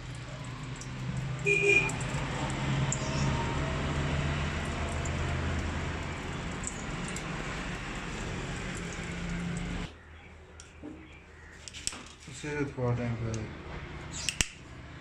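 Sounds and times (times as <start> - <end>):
liquid trickling into metal tray: 0.0 - 9.9.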